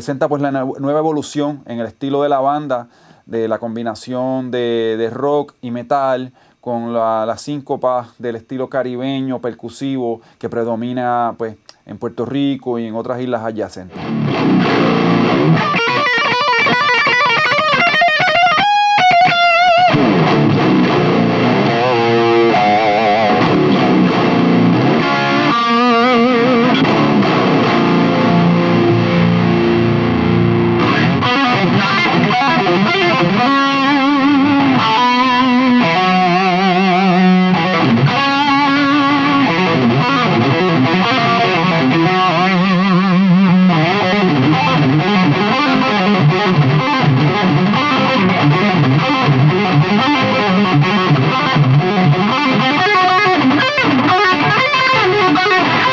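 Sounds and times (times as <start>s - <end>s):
distorted electric guitar: 13.9s - 55.9s.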